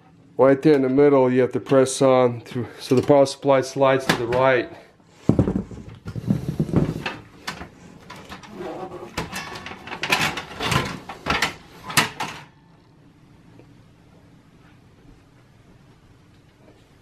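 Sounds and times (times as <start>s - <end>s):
metal scraping: 8.1s - 12.5s.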